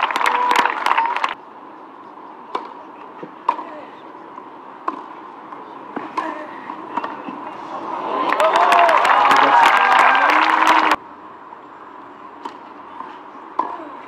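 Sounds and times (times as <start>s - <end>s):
crowd noise: 0.0s - 14.0s
tennis balls struck by racquets: 2.5s - 3.8s, 4.4s - 7.5s, 12.4s - 14.0s.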